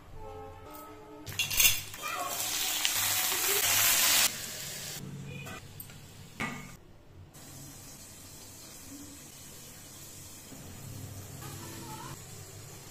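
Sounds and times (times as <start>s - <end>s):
food sizzling on hot griddle: 2.0s - 5.0s, 7.4s - 12.9s.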